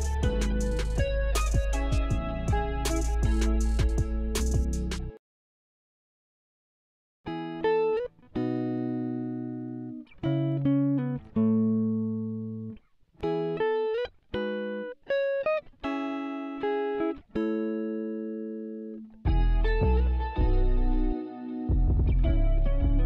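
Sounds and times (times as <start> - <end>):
deep bass: 0.0 - 5.2, 19.3 - 23.0
plucked guitar-like music: 0.0 - 5.2, 7.3 - 23.0.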